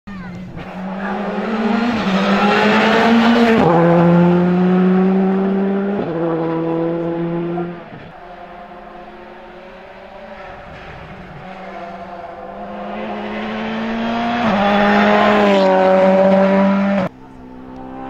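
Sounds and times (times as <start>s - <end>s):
distant rally car engine: 0.1s - 18.0s
rally car engine at full throttle: 0.3s - 18.0s.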